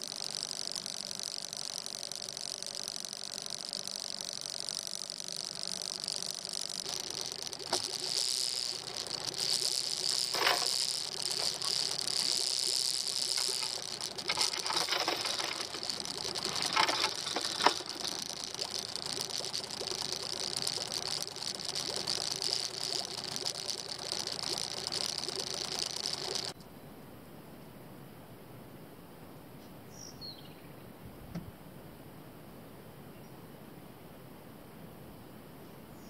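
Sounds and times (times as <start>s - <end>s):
insects droning: 0.0s - 36.0s.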